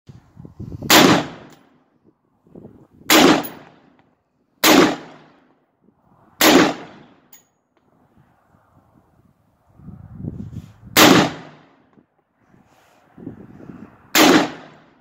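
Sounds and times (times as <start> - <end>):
rifle shots with echo: 0.9 - 1.6, 3.1 - 4.0, 4.6 - 5.6, 6.4 - 7.3, 11.0 - 11.8, 14.1 - 15.0.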